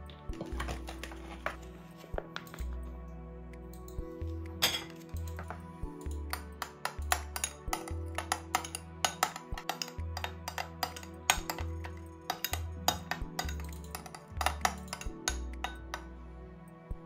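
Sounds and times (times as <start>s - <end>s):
background music with bass: 0.0s - 17.0s
spoon clinking in ceramic bowl: 4.6s - 5.5s, 6.3s - 16.0s.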